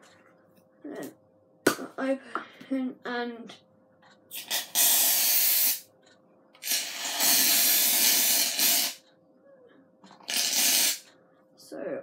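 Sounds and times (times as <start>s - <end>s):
aerosol can hissing: 4.4s - 5.8s, 6.6s - 9.0s.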